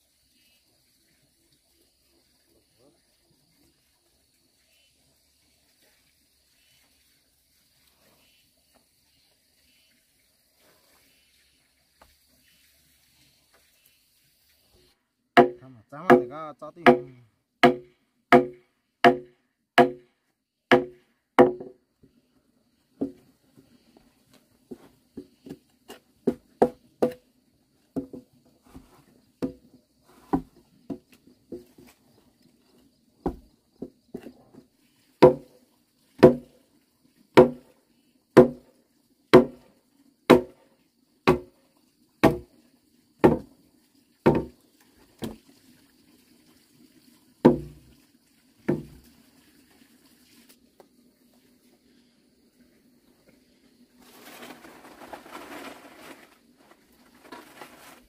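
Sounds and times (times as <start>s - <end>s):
axe chopping wood: 15.4s - 20.1s, 20.7s - 21.7s, 35.2s - 35.5s, 36.2s - 36.5s, 37.4s - 37.6s, 38.4s - 38.6s, 39.4s - 39.6s, 40.3s - 40.6s, 41.3s - 41.5s, 42.2s - 42.5s, 43.2s - 43.5s, 44.3s - 44.5s, 47.5s - 47.8s.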